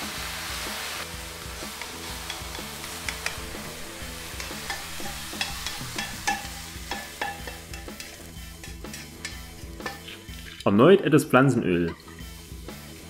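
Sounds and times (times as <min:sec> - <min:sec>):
onions sizzling in a pan: 0:00.0 - 0:10.6, 0:12.0 - 0:13.0
tongs clicking and scraping pan: 0:01.6 - 0:10.8.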